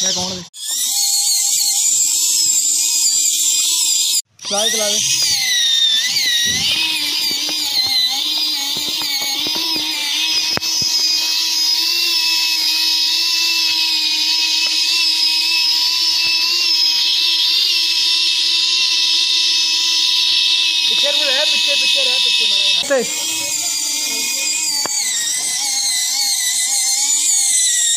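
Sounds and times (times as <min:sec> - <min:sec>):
electric motor whining: 0:00.0 - 0:27.9
clicks and sharp tick: 0:06.7 - 0:11.1.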